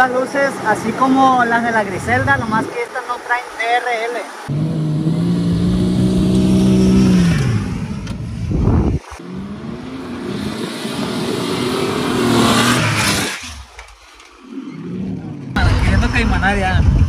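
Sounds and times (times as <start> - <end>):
off-road engine at steady revs: 4.4 - 13.4
pickup engine revving under load: 4.5 - 13.8.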